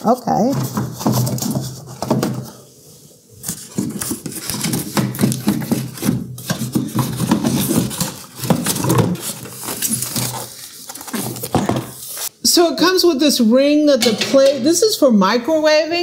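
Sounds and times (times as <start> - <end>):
cardboard rustling and scraping: 0.4 - 12.3.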